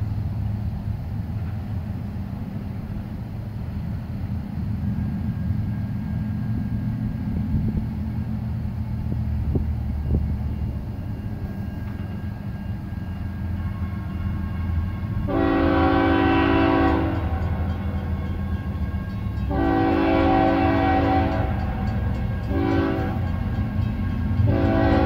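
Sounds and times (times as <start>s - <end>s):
diesel locomotive rumble: 0.0s - 25.0s
locomotive horn blast: 13.3s - 25.0s.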